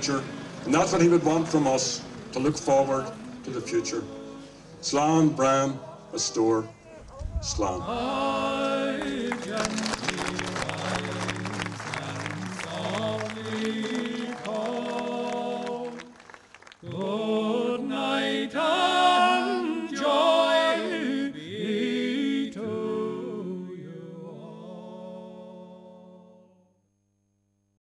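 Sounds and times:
slow music: 8.0 - 16.1.

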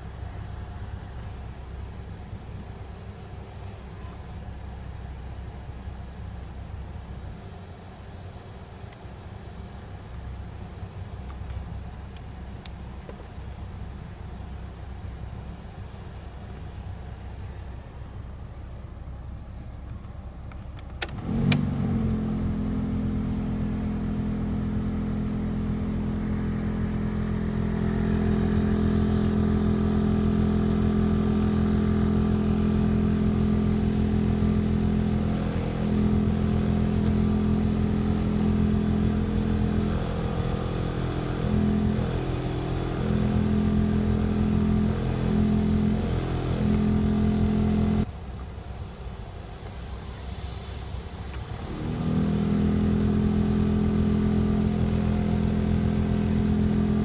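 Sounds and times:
blower motor switch click: 20.5 - 21.9
blower motor humming: 20.9 - 57.0.

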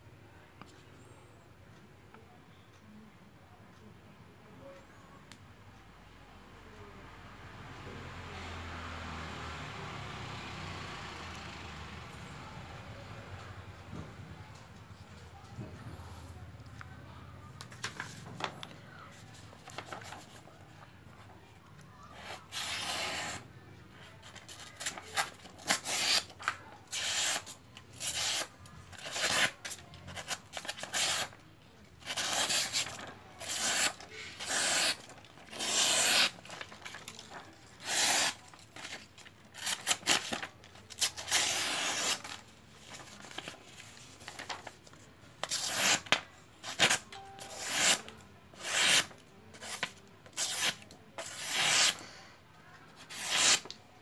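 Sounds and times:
knife slicing paper: 22.2 - 23.4, 24.6 - 26.3, 26.9 - 29.6, 32.0 - 37.2, 37.8 - 39.0, 39.6 - 43.6, 45.4 - 52.0, 53.0 - 53.7.

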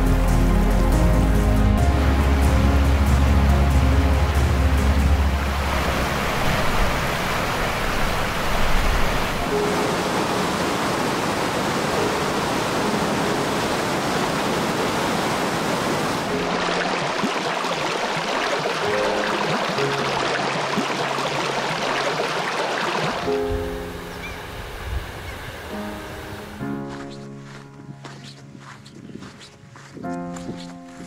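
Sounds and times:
fast-flowing river water: 0.2 - 27.6
stream running over rocks: 2.0 - 26.6.

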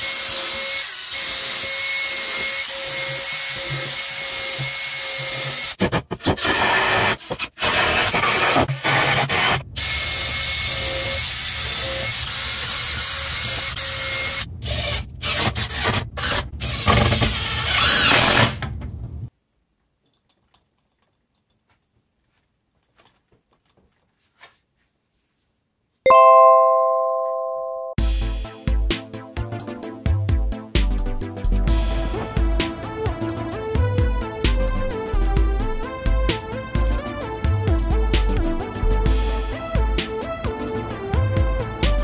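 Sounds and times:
cordless drill driving screws: 0.0 - 5.8, 9.8 - 18.6
bright chime: 26.1 - 28.0.

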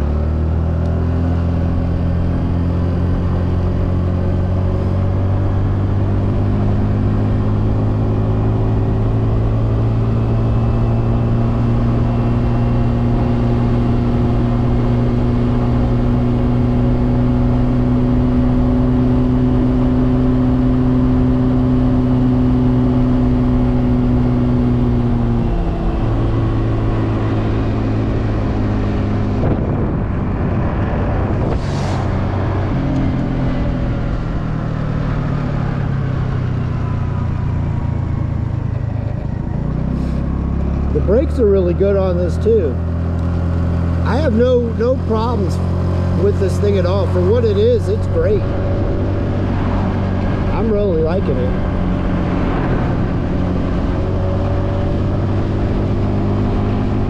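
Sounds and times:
motorbike engine running: 32.4 - 57.0.

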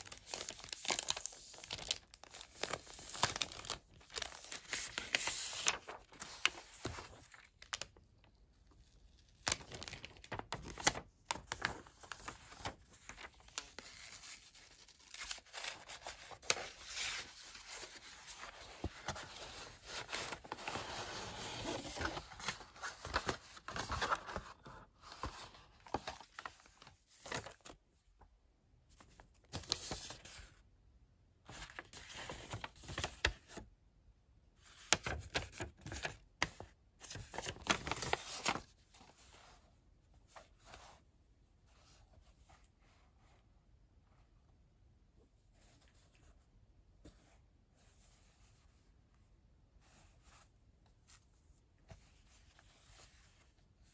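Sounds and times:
plastic wrapping crinkling: 0.1 - 7.9, 9.4 - 13.5.

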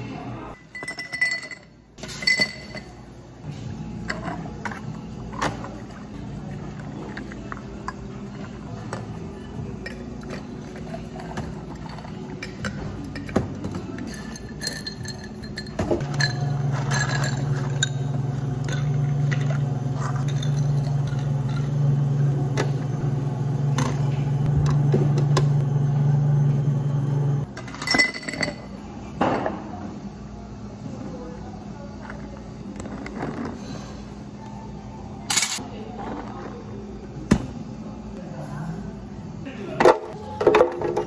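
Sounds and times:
glassware and ice clinking: 0.6 - 3.0, 11.8 - 21.8, 27.7 - 28.7
electric motor humming: 18.0 - 27.4.

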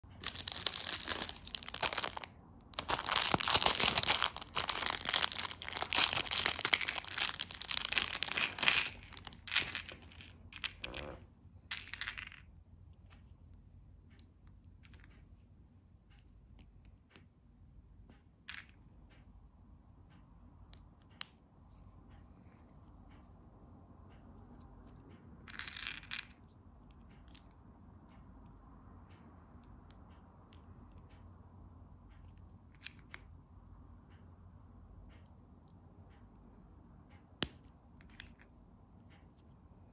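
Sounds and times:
plastic bag crinkling and tearing: 0.2 - 9.3
plastic rustle: 0.2 - 9.9.

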